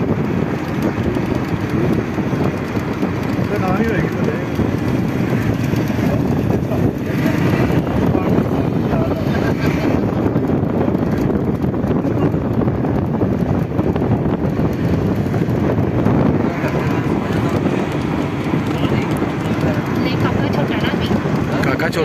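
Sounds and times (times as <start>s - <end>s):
bus engine and road rumble: 0.0s - 22.0s
wind buffeting microphone: 0.0s - 22.0s
faint voices: 3.2s - 11.2s, 16.2s - 22.0s.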